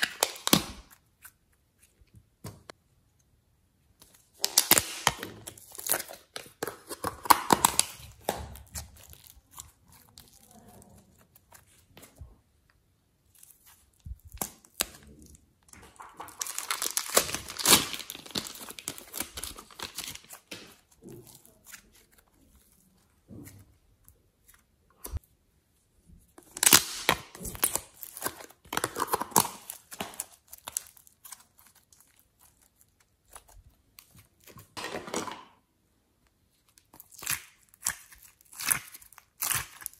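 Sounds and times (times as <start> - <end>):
plastic packaging crinkling: 13.3 - 23.1, 26.4 - 35.4.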